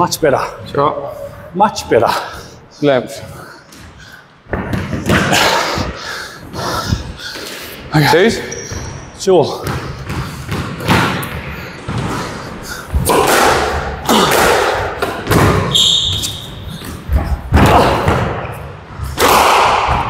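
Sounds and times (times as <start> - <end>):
squash ball hits echoing: 4.5 - 6.0, 8.7 - 20.0.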